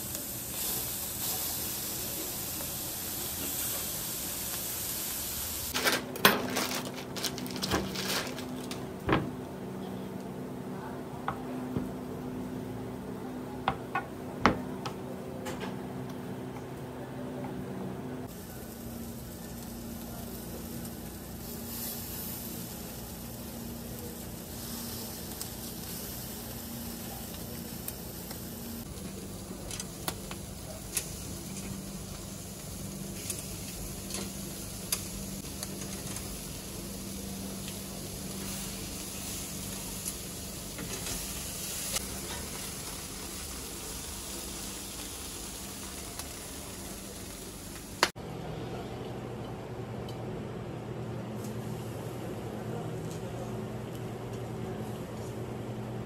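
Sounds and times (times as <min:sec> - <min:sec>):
squid sizzling on a grill: 0:00.0 - 0:05.8, 0:18.3 - 0:48.2.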